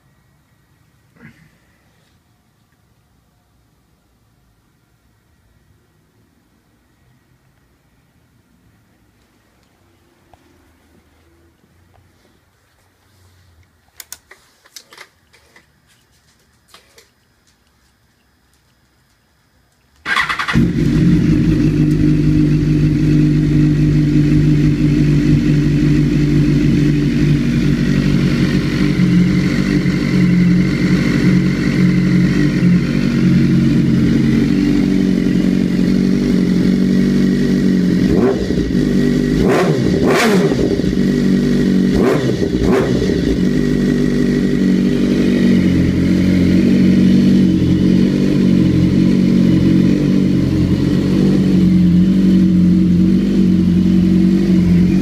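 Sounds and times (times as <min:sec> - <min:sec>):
motorcycle engine idling: 0:20.0 - 0:55.0.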